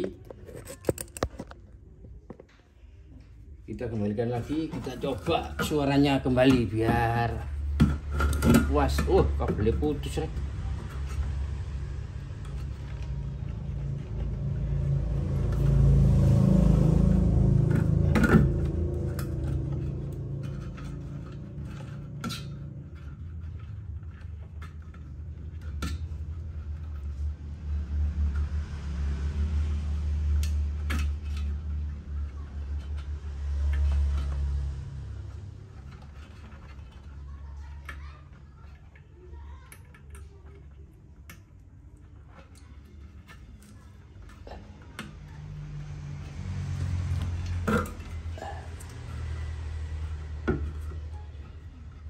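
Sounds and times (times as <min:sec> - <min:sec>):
small metallic clicks and rattles: 0:00.0 - 0:01.7, 0:17.4 - 0:52.0
low rumble: 0:09.3 - 0:36.2.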